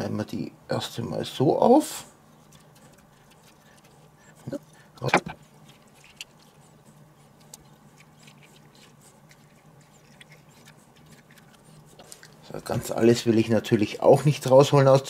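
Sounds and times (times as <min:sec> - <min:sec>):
low steady hum: 0:00.0 - 0:15.0
teaspoon scraping tomato: 0:02.4 - 0:13.0.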